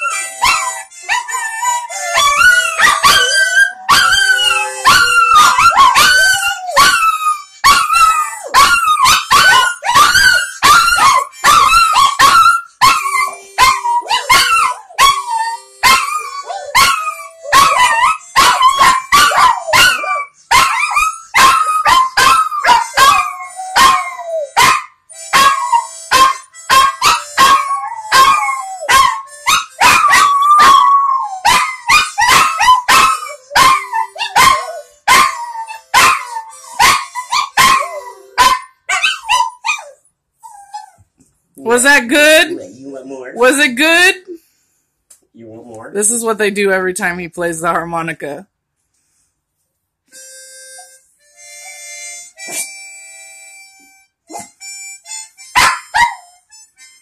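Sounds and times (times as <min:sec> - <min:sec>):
harmonica: 0:00.0 - 0:38.8, 0:41.6 - 0:44.9, 0:50.1 - 0:57.0
small dogs howling and yipping: 0:00.0 - 0:41.0.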